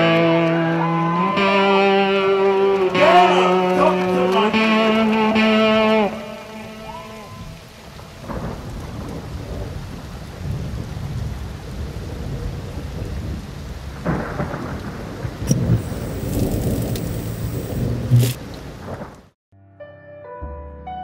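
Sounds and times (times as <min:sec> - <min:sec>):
rain hissing: 0:02.4 - 0:19.4
thunder rumbling: 0:06.7 - 0:19.4
sharp thunder crack: 0:08.0 - 0:19.4.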